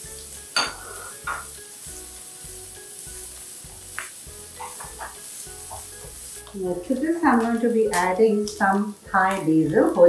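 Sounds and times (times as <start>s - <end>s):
vegetables sizzling in a wok: 0.0s - 10.0s
spatula scraping a pan: 4.4s - 6.5s.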